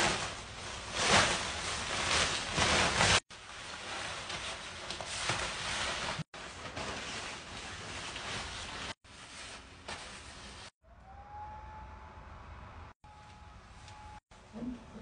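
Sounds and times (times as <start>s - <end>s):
nylon costume rustling and crinkling: 0.0s - 10.8s.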